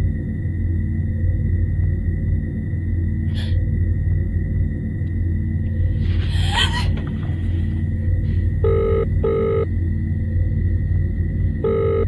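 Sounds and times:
low background music drone: 0:00.0 - 0:12.0
telephone ringing tone: 0:08.6 - 0:09.7, 0:11.6 - 0:12.0.

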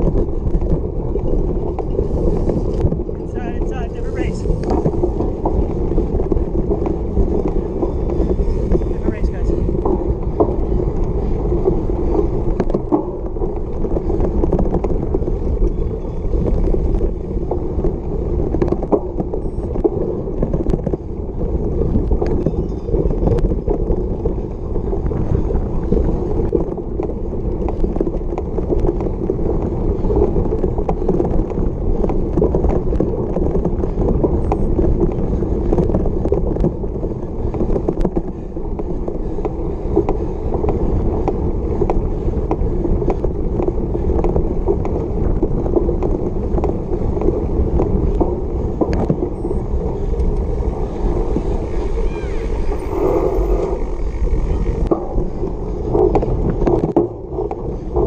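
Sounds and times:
bike tyres rumbling on grass: 0:00.0 - 0:58.0
rushing air: 0:01.9 - 0:10.0, 0:49.4 - 0:56.6
bike rattling clicks: 0:26.8 - 0:55.4.

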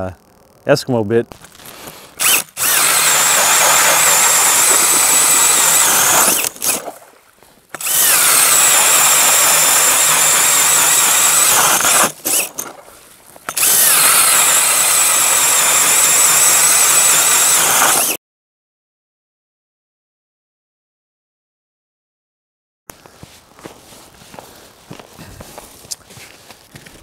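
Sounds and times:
auger blades grinding ice: 0:01.3 - 0:07.0, 0:07.7 - 0:18.2
drill motor whine: 0:02.1 - 0:06.8, 0:07.8 - 0:12.6, 0:13.5 - 0:18.2.

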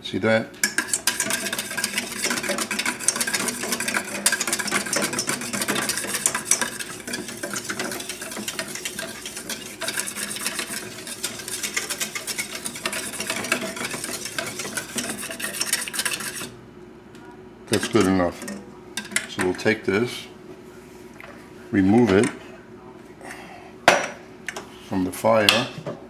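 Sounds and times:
whisk scraping metal pan: 0:00.6 - 0:16.6, 0:17.7 - 0:19.8.

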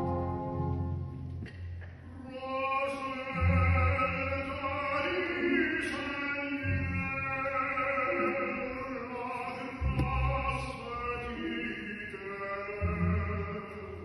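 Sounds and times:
symphony orchestra playing: 0:00.0 - 0:01.4
operatic tenor singing: 0:02.1 - 0:14.0.

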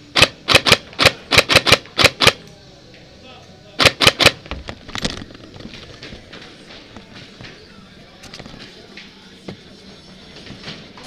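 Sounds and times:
airsoft rifle shots: 0:00.1 - 0:02.4, 0:03.8 - 0:04.6.

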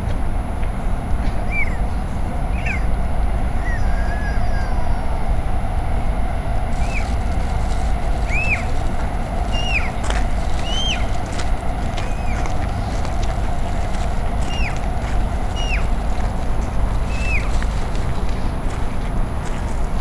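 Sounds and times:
low urban rumble: 0:00.0 - 0:20.0
bird-like chirps: 0:01.5 - 0:02.9, 0:06.8 - 0:07.3, 0:08.2 - 0:08.8, 0:09.4 - 0:11.1, 0:12.0 - 0:12.6, 0:14.4 - 0:14.8, 0:15.4 - 0:16.0, 0:17.0 - 0:17.6.

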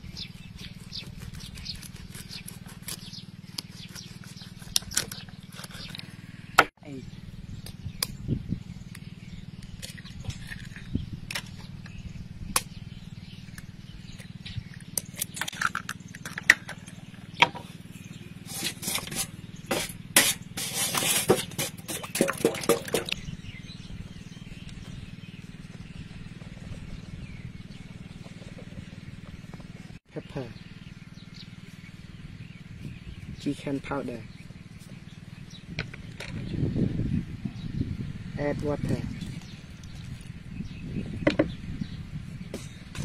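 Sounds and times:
steady low hum: 0:00.0 - 0:43.0
metal spoon scraping in bowl: 0:18.5 - 0:23.2.

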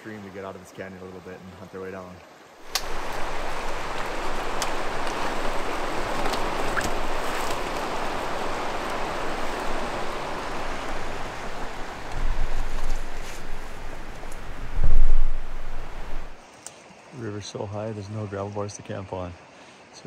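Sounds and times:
river rushing: 0:02.3 - 0:17.2.

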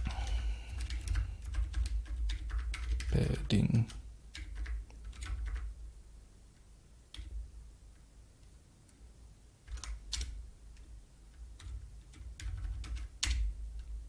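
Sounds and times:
typing on computer keyboard: 0:00.0 - 0:05.8, 0:09.6 - 0:14.0.

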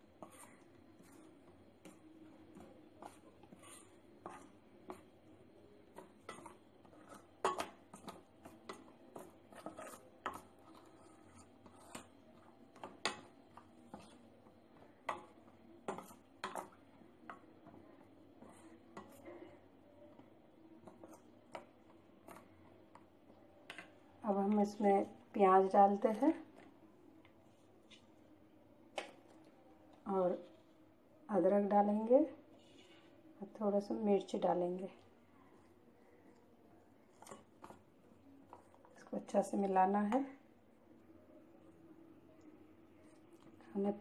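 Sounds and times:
metal spoon scraping steel bowl: 0:03.0 - 0:04.5, 0:06.2 - 0:14.2.

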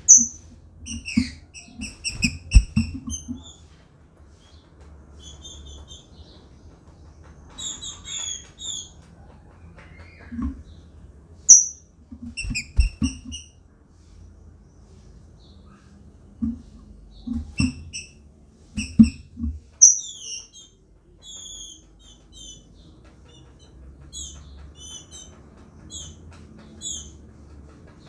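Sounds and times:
bird chirping calls: 0:00.0 - 0:03.7, 0:04.4 - 0:13.6, 0:19.8 - 0:28.0.

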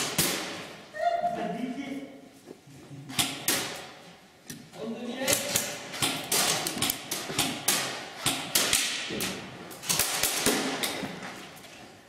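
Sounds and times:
airsoft gunfire cracks: 0:09.8 - 0:11.0.

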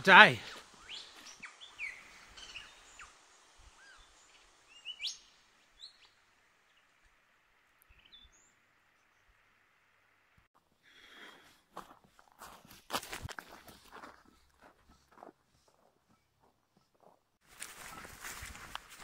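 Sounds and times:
bird chirps: 0:00.0 - 0:06.9, 0:07.9 - 0:09.3.

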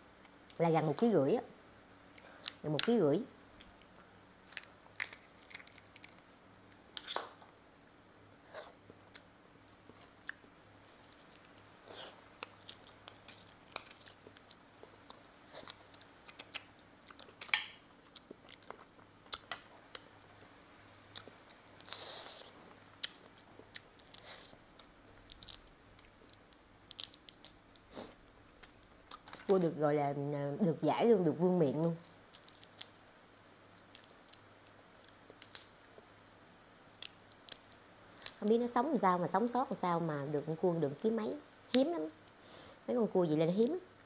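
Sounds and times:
soft chewing and mouth sounds: 0:02.1 - 0:02.9, 0:03.5 - 0:29.8, 0:31.7 - 0:36.2
crab shell crunching: 0:03.6 - 0:08.0, 0:09.1 - 0:20.2, 0:21.1 - 0:29.6.

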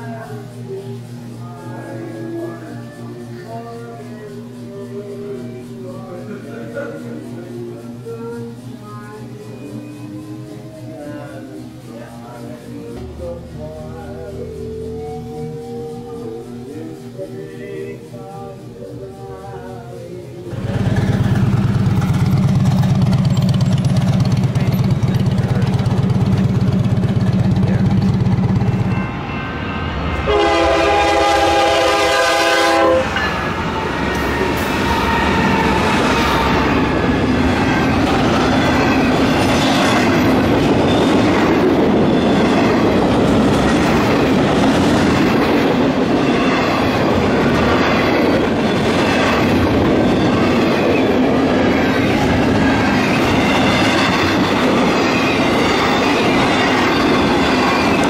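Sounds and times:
freight train rolling past: 0:00.0 - 0:58.0
train wheels on rails: 0:00.0 - 0:58.0
train horn: 0:01.6 - 0:04.6, 0:12.9 - 0:19.8, 0:29.0 - 0:37.5
motorcycle engine idling: 0:20.6 - 0:28.4.

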